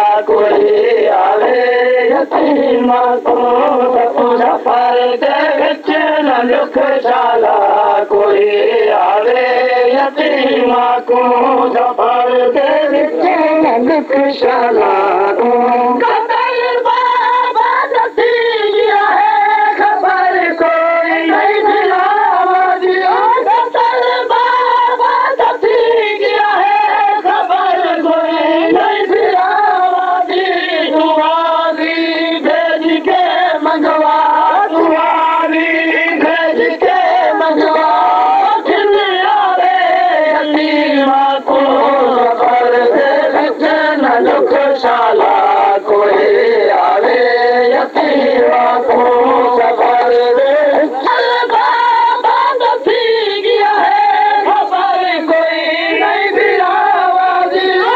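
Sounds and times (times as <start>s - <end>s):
man chanting a lament: 25.4s - 51.5s.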